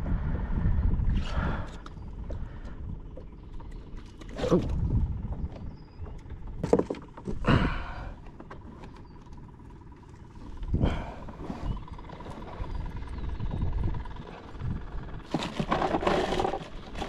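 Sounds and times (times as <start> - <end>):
wind rumble on microphone: 0.0 - 8.2, 10.3 - 17.0
knocks and scraping bumps on kayak: 6.6 - 7.4, 15.2 - 17.0.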